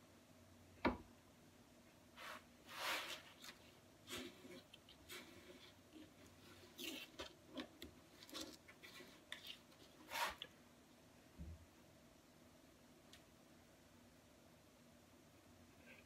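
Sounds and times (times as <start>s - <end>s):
stir stick scraping epoxy: 2.2s - 10.5s.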